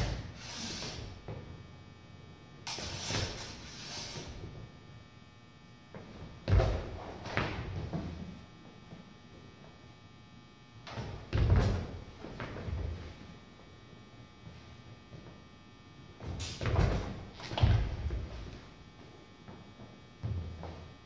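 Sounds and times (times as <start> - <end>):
feet thumping on wooden floor: 5.9 - 8.4, 16.2 - 18.6, 20.2 - 20.9.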